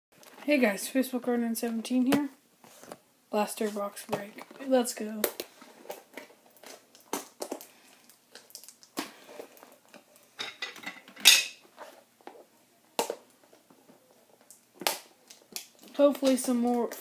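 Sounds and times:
packaging crinkling and rustling: 0:03.6 - 0:10.3, 0:11.7 - 0:17.0.

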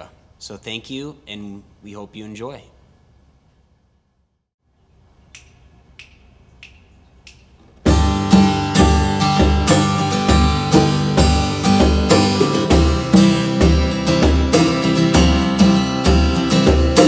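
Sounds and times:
hand drums: 0:07.8 - 0:17.0
strummed acoustic guitar: 0:07.8 - 0:17.0.

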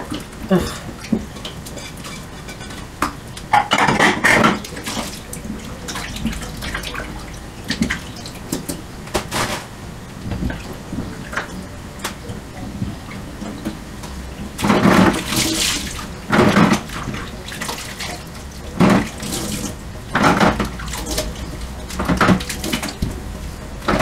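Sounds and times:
water splashing: 0:00.0 - 0:09.0, 0:14.4 - 0:24.0
dishes clinking: 0:00.1 - 0:02.9, 0:03.5 - 0:05.0.

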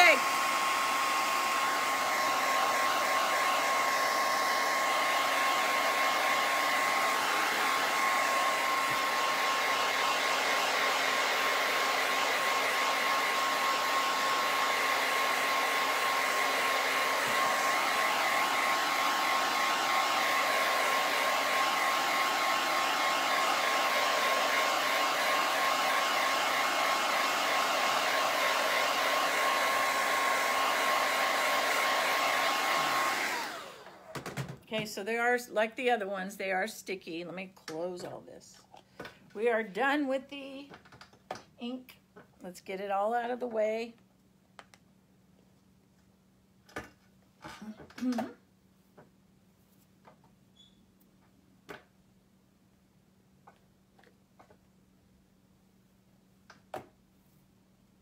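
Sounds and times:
hair dryer running: 0:00.0 - 0:35.2.

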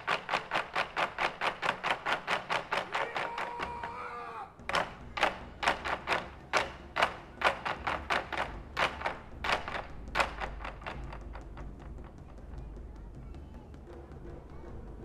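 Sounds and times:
taiko drums beating: 0:00.0 - 0:15.0.

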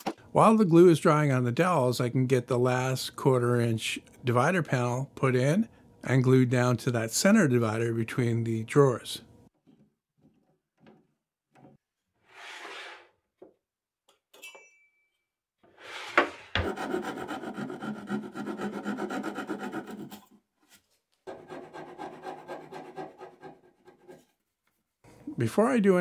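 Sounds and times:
hand file rasping on wood: 0:16.6 - 0:20.4, 0:21.3 - 0:24.3.

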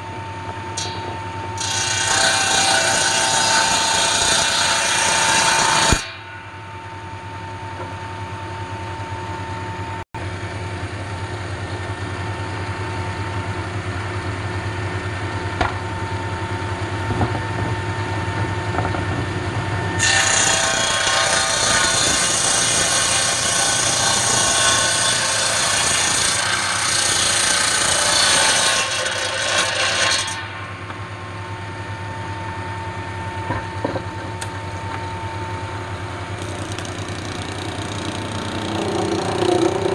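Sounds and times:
table saw cutting wood: 0:01.6 - 0:06.1, 0:20.0 - 0:30.6, 0:36.3 - 0:39.9
saw blade running free: 0:36.4 - 0:39.9.

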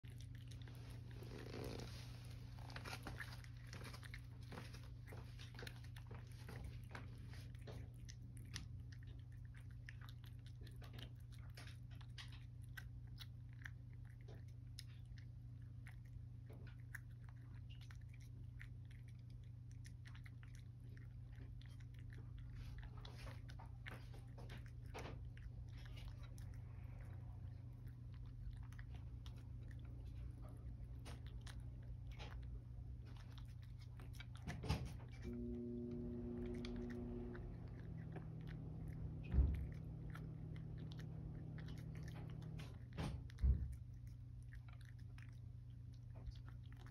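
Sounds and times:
cat crunching dry kibble: 0:00.0 - 0:46.9
low hum: 0:14.7 - 0:46.9.

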